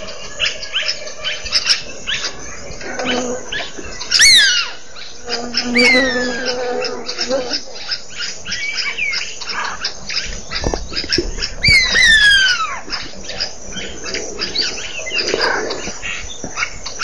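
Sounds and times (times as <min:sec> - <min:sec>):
short chattering bird calls: 0:00.0 - 0:17.0
descending bird whistle: 0:04.1 - 0:04.8, 0:05.7 - 0:06.5, 0:10.5 - 0:12.9.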